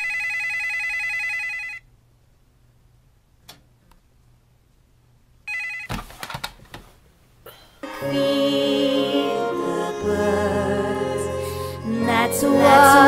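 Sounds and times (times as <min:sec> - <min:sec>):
music with long held notes: 0:07.8 - 0:13.0.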